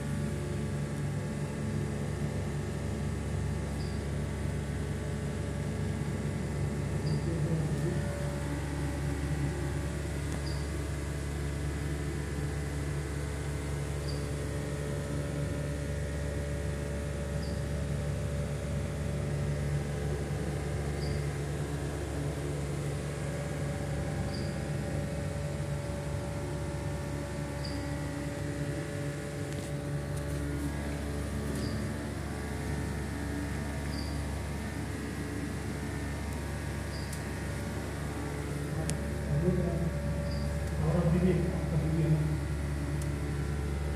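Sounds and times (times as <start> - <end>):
pump installation hum: 0.0 - 43.9
faint high chirp: 3.8 - 4.0, 7.0 - 7.3, 10.4 - 10.8, 14.0 - 14.4, 17.4 - 17.6, 21.0 - 21.3, 24.3 - 24.6, 27.6 - 27.9, 31.6 - 31.9, 33.9 - 34.2, 36.9 - 37.2, 40.2 - 40.6.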